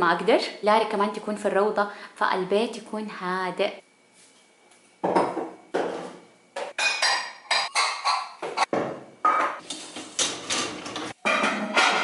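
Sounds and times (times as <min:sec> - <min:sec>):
dishes and glasses clattering: 0:05.1 - 0:12.0.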